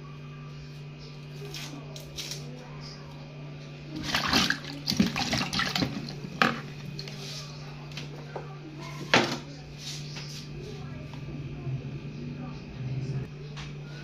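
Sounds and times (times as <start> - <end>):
clattering and rustling at sink: 4.0 - 9.5
low hum: 9.5 - 14.0.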